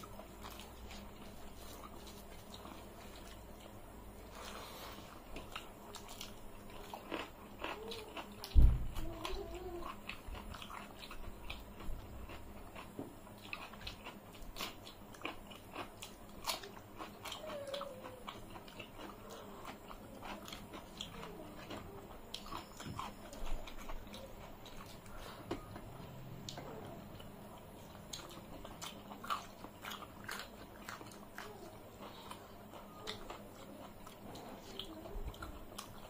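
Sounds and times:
people chewing crunchy vegetables: 0:00.0 - 0:36.0
heavy thump: 0:08.6 - 0:09.0.

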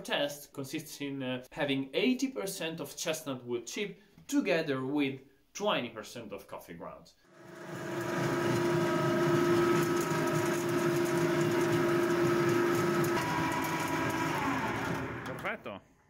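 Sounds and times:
pellet mill humming and whining: 0:07.3 - 0:15.5.

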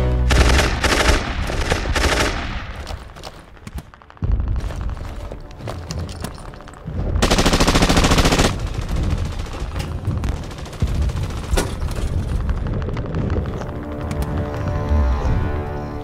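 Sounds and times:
rapid automatic gunfire burst: 0:00.3 - 0:02.6, 0:07.2 - 0:11.8
scattered sharp gunshots: 0:00.3 - 0:02.8.

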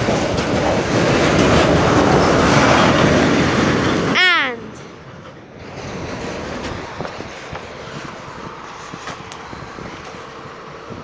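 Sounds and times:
wheel clacks over rail joints: 0:00.0 - 0:03.7
freight train rumble: 0:00.0 - 0:11.0.

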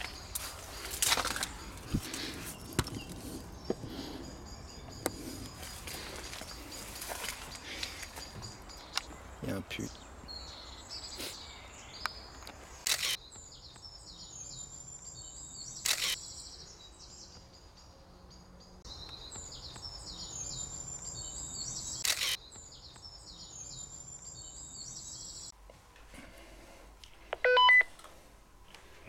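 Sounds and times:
songbirds chirping: 0:00.0 - 0:25.6
sharp clicks: 0:12.0 - 0:13.2.

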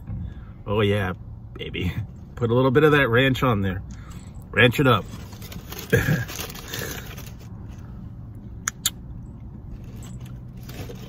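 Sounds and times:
sharp clicks: 0:08.6 - 0:09.0.

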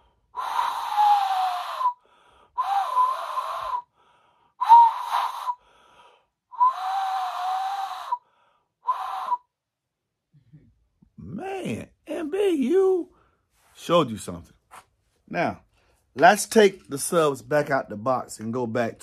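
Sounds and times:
blowing across bottle mouth: 0:00.4 - 0:04.0, 0:04.6 - 0:05.9, 0:06.5 - 0:09.5.

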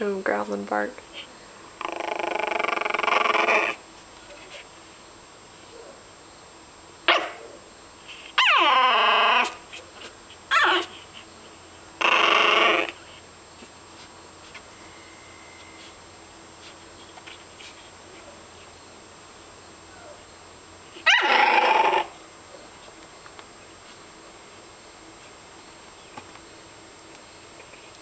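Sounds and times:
puppy barking: 0:07.1 - 0:07.4, 0:10.5 - 0:11.0, 0:21.0 - 0:22.1.

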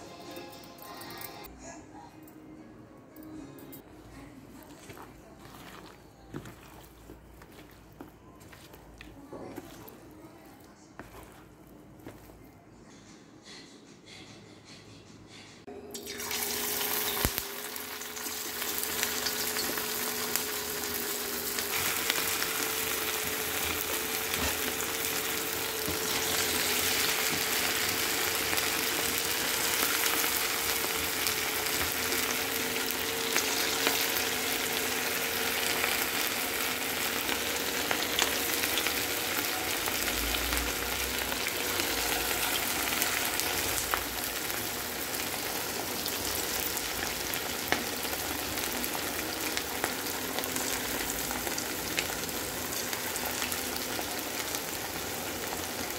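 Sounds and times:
food deep-frying in oil: 0:15.9 - 0:55.9.

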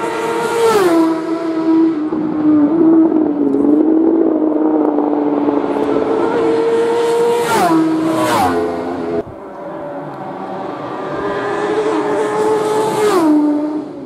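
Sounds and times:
racing motorcycles passing: 0:00.0 - 0:14.0.

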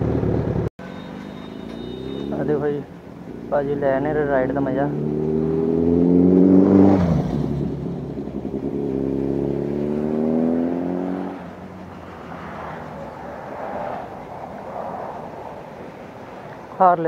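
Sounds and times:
motorcycle engine accelerating: 0:00.0 - 0:13.5.

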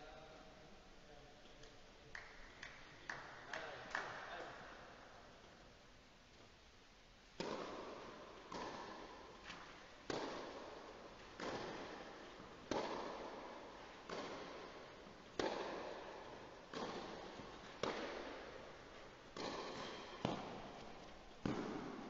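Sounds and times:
tennis ball knock: 0:07.4 - 0:09.1, 0:15.4 - 0:22.0
tennis racket hitting ball: 0:07.4 - 0:22.0.

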